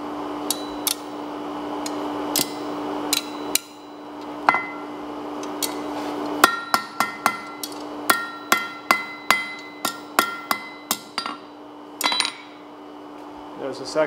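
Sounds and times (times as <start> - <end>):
anvil ringing: 0.5 - 1.2, 2.4 - 5.0, 6.4 - 12.6
hammer striking steel on anvil: 0.5 - 1.2, 1.9 - 5.0, 5.6 - 12.6.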